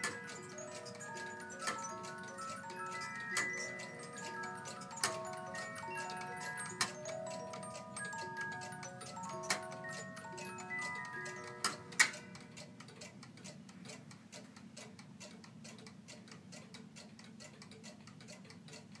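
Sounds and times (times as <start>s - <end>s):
music box playing: 0.0s - 12.8s
clock mechanism clicks: 0.0s - 19.0s
clock ticking: 0.0s - 19.0s.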